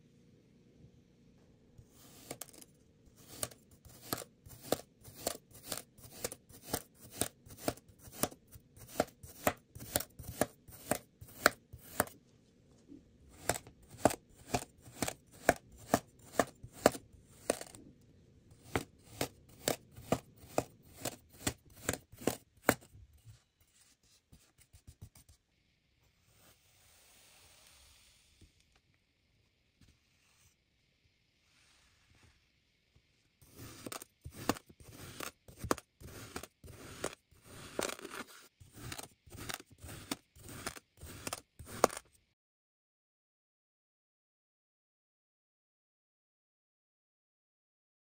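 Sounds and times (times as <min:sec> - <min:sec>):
knife cutting through sand: 0:03.2 - 0:12.1, 0:18.6 - 0:22.9, 0:33.5 - 0:42.0.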